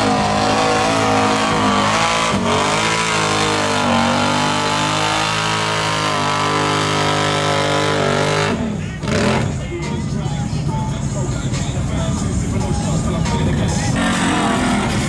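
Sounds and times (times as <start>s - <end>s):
tires churning through mud: 0.0s - 9.6s, 13.9s - 15.0s
atv engine revving: 0.0s - 10.4s, 11.1s - 15.0s.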